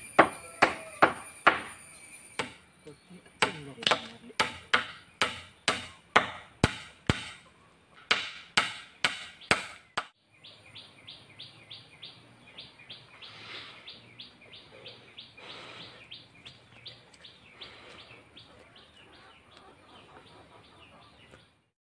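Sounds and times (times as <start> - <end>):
faint steady high tone: 0.0 - 3.1
high chirping: 0.0 - 6.1, 9.1 - 21.5
hammer pounding on wood: 0.2 - 1.7, 2.4 - 2.6, 3.4 - 7.4, 8.0 - 10.2.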